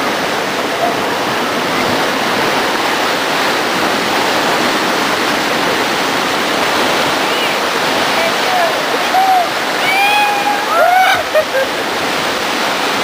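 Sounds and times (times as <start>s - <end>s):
river rapids rushing: 0.0s - 13.0s.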